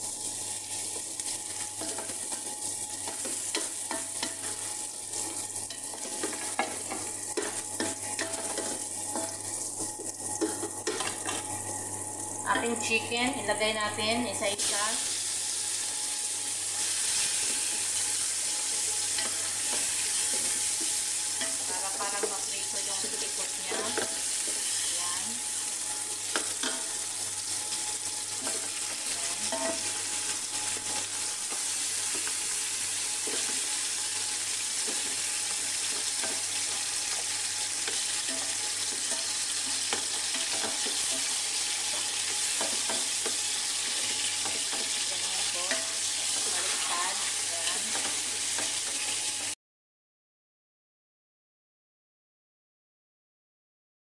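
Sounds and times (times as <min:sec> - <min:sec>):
chicken sizzling in hot oil: 0:00.0 - 0:49.6
spoon and ladle scraping pot: 0:00.9 - 0:11.8, 0:25.9 - 0:32.4, 0:34.8 - 0:49.2.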